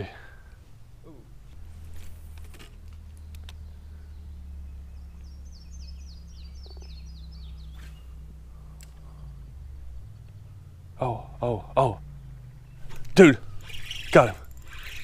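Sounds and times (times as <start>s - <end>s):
low steady rumble: 0.0s - 15.0s
songbird singing: 0.0s - 15.0s
faint clicks: 2.3s - 3.6s, 8.6s - 9.3s.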